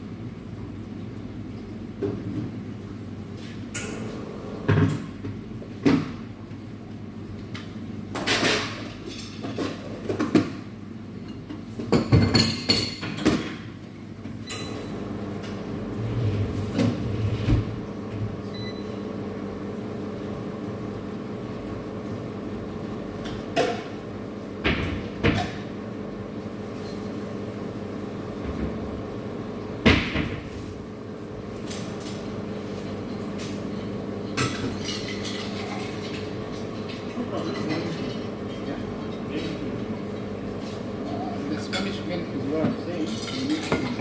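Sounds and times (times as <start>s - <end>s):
steady machine hum: 0.0s - 8.2s, 13.9s - 44.0s
cups and equipment clattering: 11.3s - 13.7s, 32.1s - 44.0s.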